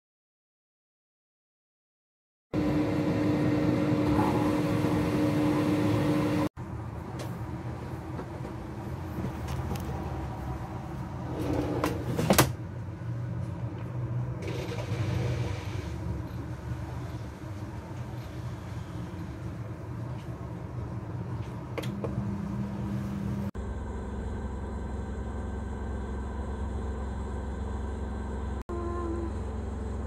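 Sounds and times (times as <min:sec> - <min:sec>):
air fryer fan humming: 0:02.6 - 0:09.3, 0:14.0 - 0:30.0.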